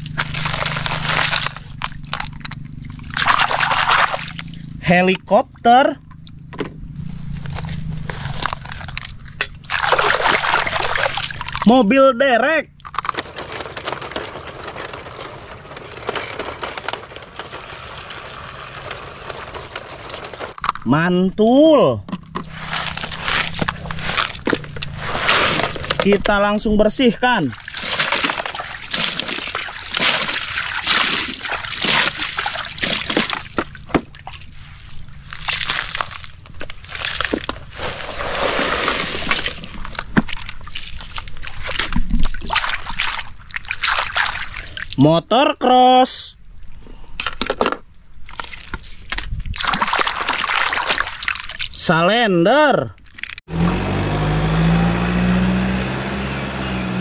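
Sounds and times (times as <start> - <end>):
clicks of stones and plastic: 0.0 - 4.5, 7.5 - 11.7, 12.7 - 20.9, 22.0 - 26.4, 35.3 - 37.9, 38.8 - 45.0, 46.5 - 51.8, 52.9 - 53.5
toy truck crunching over wet gravel: 0.0 - 4.8, 7.3 - 12.0, 12.8 - 20.9, 22.3 - 26.4, 27.5 - 45.0, 47.2 - 51.9.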